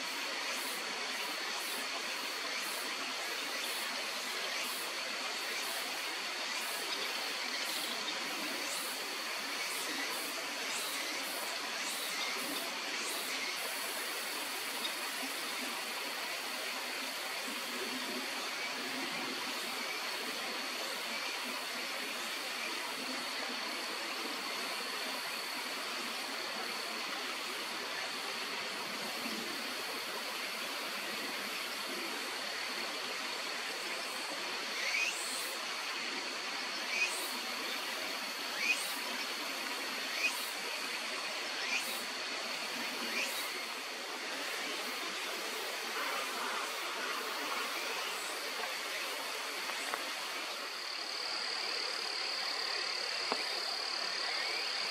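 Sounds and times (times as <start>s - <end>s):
stream water rushing: 11.4s - 54.9s.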